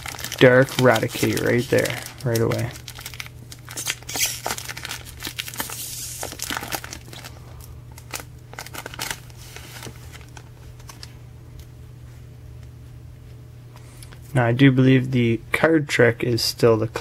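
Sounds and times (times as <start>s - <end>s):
foil wrapper crinkling: 0.0s - 11.2s.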